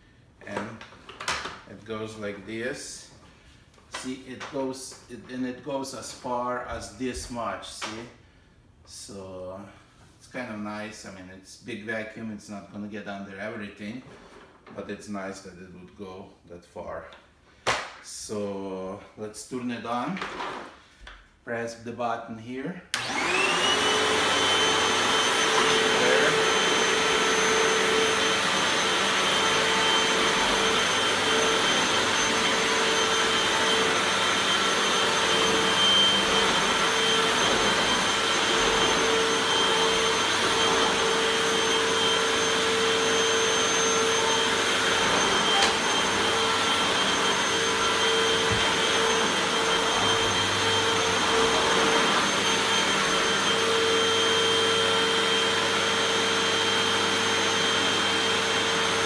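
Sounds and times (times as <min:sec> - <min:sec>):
vacuum cleaner running: 0:22.9 - 0:59.0.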